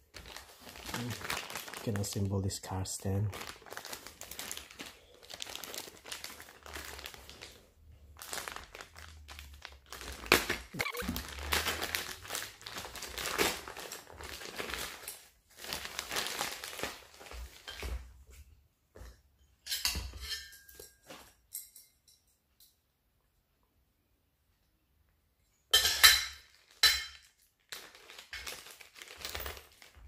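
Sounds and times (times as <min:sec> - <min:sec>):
plastic bags crinkling: 0:00.0 - 0:18.0, 0:26.4 - 0:30.0.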